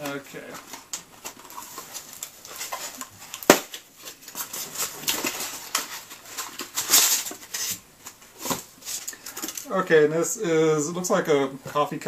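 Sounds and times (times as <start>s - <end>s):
cardboard box rustling: 0.0s - 9.6s.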